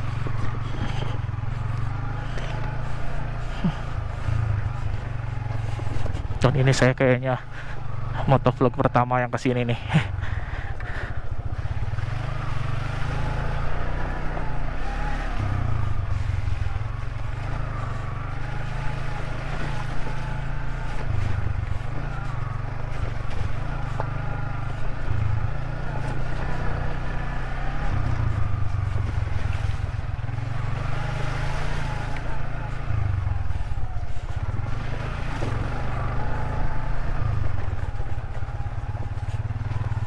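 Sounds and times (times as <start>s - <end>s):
motorcycle engine running: 0.0s - 40.0s.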